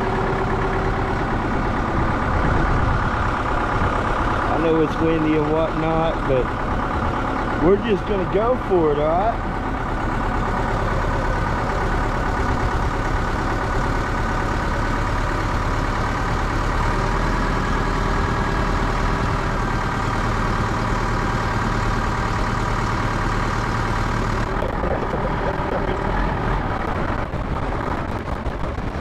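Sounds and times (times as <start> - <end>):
diesel engine idling: 0.0 - 29.0
wind blowing across microphone: 2.0 - 4.2, 26.8 - 29.0.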